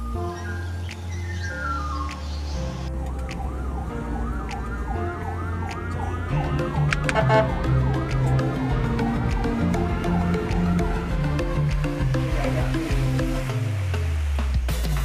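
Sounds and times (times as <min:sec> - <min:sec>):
background music: 0:00.0 - 0:15.0
police motorcycle siren: 0:02.9 - 0:11.2.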